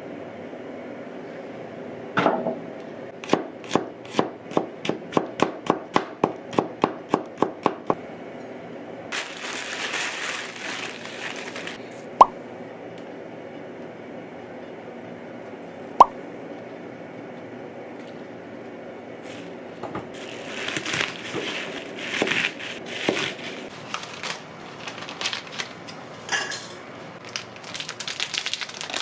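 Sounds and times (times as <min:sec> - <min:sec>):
plastic bag crinkling: 0:09.1 - 0:11.8, 0:20.1 - 0:25.8, 0:27.2 - 0:29.0.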